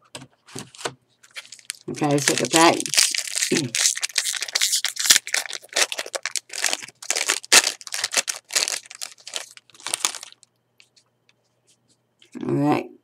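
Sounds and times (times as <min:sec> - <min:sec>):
foil wrapper crinkling: 0:00.8 - 0:10.5.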